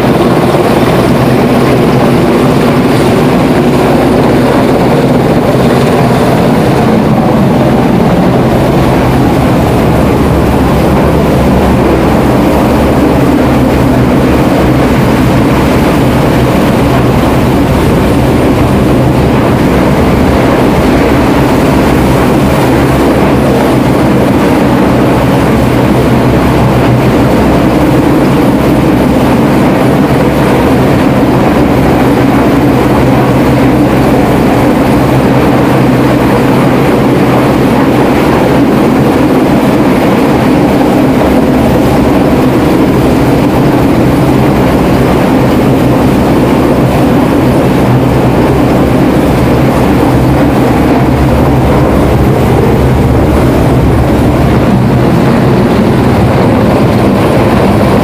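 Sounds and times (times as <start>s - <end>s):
helicopter rotor and engine drone: 0.0s - 58.0s.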